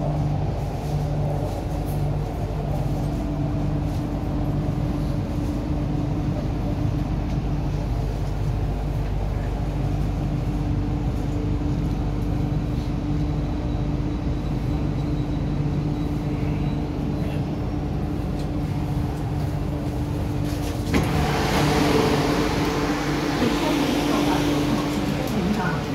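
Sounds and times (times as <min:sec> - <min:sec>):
train equipment hum: 0:00.0 - 0:25.9
rush of noise as doors open: 0:18.4 - 0:25.9.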